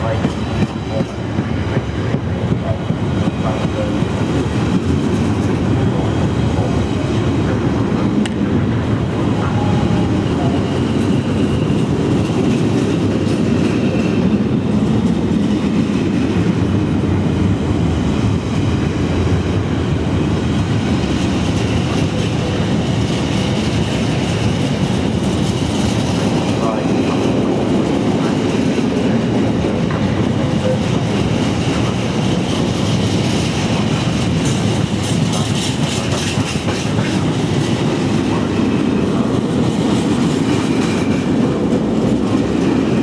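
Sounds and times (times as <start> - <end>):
train wheels rumbling on rails: 0.0 - 43.0.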